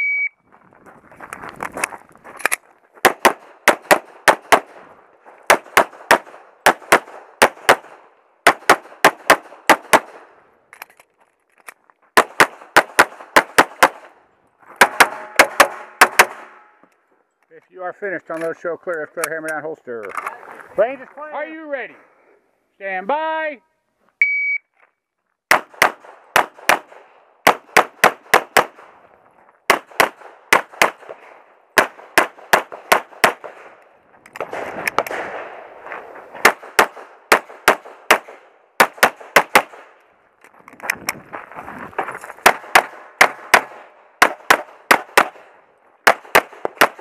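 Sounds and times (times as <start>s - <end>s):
pistol shots: 3.0s - 4.8s, 5.5s - 10.3s, 12.2s - 14.1s, 14.8s - 16.6s, 25.5s - 28.9s, 29.7s - 33.8s, 36.4s - 40.0s, 42.4s - 47.0s.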